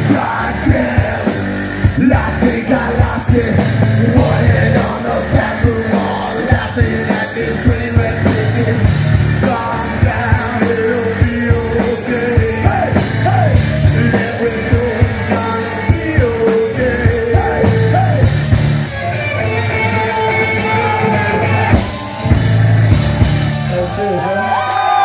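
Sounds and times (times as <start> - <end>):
lead singer singing: 0.0 - 18.6
drum kit: 0.0 - 24.2
electric guitars: 0.0 - 25.0.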